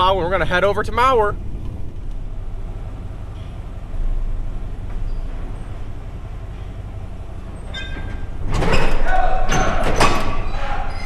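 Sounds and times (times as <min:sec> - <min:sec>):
vehicle engine idling: 0:00.0 - 0:11.0
loud metal clanks and knocks: 0:06.6 - 0:11.0.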